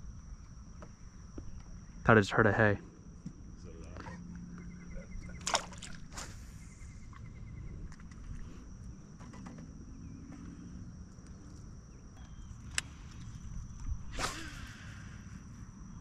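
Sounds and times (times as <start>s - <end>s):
high-pitched insect drone: 3.5s - 16.0s
light clicks: 12.2s - 13.2s.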